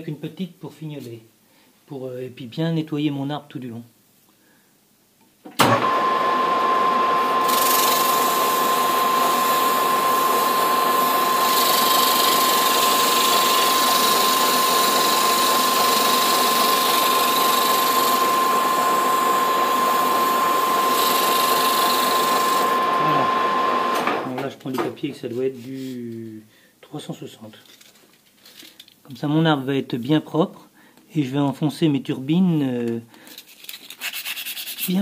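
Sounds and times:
metal lathe whining: 5.6 - 24.3
abrasive cloth hissing on shaft: 6.9 - 24.0.

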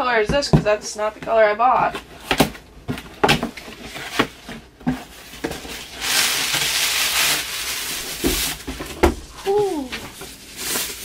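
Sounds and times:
packaging rustling: 1.8 - 11.0
cardboard box knocks and scrapes: 8.2 - 9.2.

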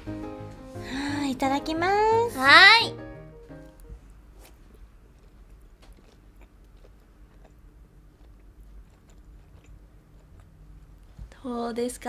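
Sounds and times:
person chewing food: 4.1 - 11.2.

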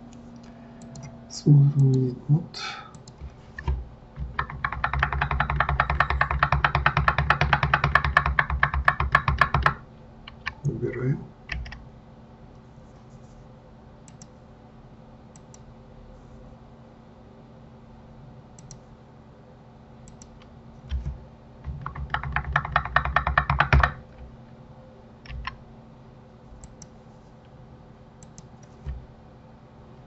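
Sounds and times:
faint steady hum: 0.0 - 30.0
rapid keyboard typing: 4.2 - 10.8, 11.5 - 11.8, 21.6 - 24.0, 25.2 - 25.6
mouse and key clicks: 14.1 - 14.4, 18.6 - 18.8, 20.0 - 20.5, 28.2 - 28.8.

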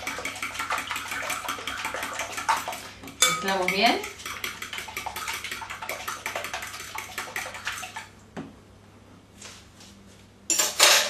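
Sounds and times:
whisk clicking in glass bowl: 0.0 - 8.0
liquid sloshing: 0.0 - 8.1.

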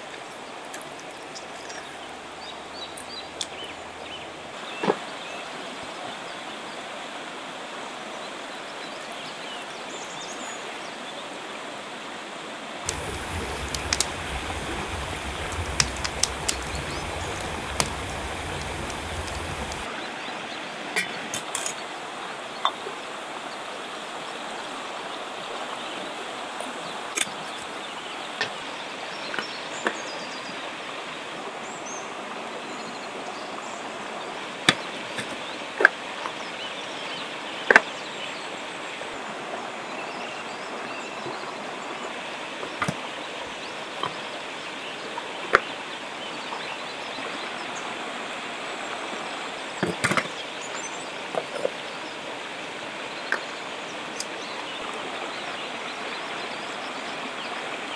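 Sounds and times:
river rushing: 12.6 - 20.9.

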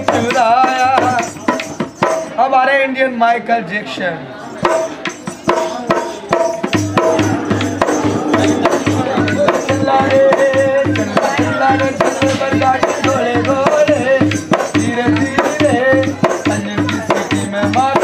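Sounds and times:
hand drum beat: 0.0 - 2.4, 4.6 - 18.0
wavering melody: 6.6 - 10.8.

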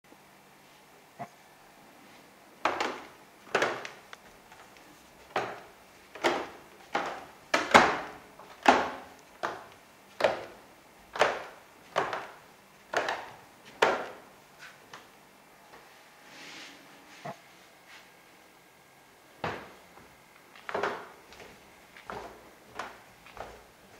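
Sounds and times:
footsteps on creaking wooden stairs: 2.6 - 14.2, 19.4 - 23.7.

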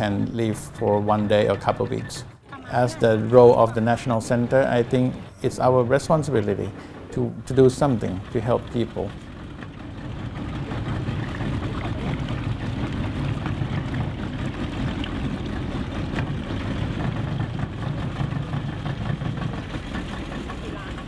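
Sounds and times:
outboard motor running: 0.0 - 21.0.

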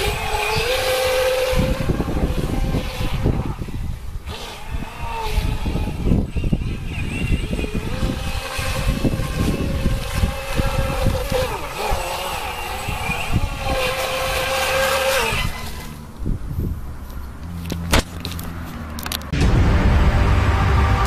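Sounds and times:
electric boat motor whining: 0.0 - 16.2.

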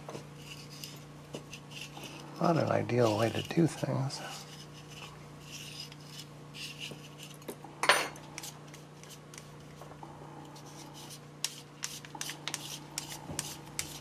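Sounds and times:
metal tool scraping lens ring: 0.4 - 9.4.

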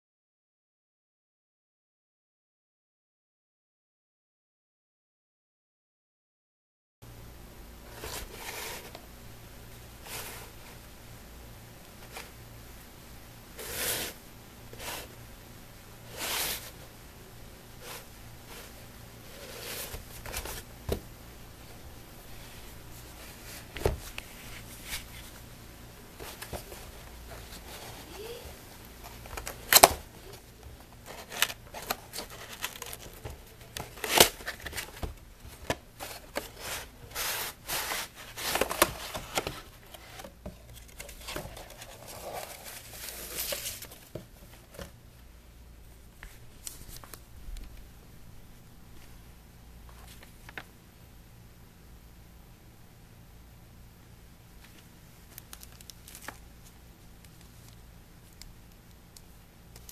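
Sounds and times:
packaging rustling and crinkling: 29.0 - 44.2, 54.6 - 57.8.

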